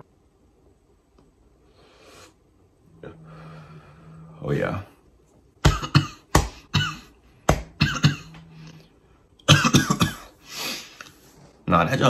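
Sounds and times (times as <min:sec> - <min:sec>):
man coughing: 0:05.6 - 0:08.5, 0:09.4 - 0:10.4.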